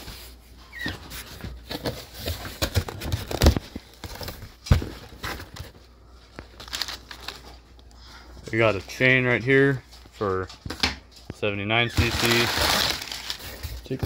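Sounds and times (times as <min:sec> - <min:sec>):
packing paper crinkling: 0:06.3 - 0:07.6, 0:11.7 - 0:14.0.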